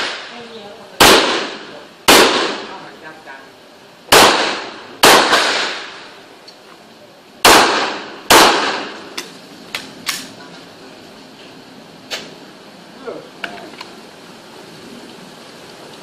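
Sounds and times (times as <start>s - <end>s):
handgun shots with echo: 4.1s - 5.9s, 7.5s - 9.0s.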